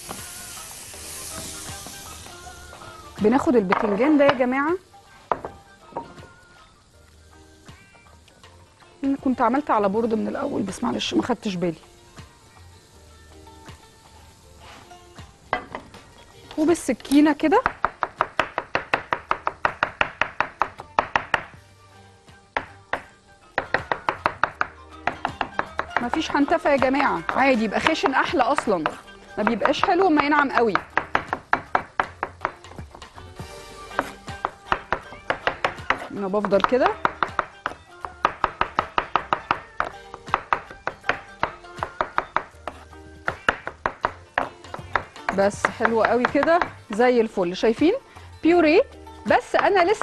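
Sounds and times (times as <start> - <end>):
knife chopping on wooden board: 17.6 - 21.6, 22.6 - 33.0, 33.9 - 47.1.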